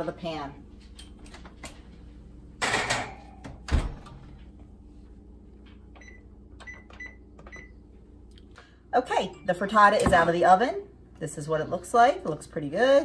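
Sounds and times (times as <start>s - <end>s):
oven door thumping shut: 3.0s - 4.2s.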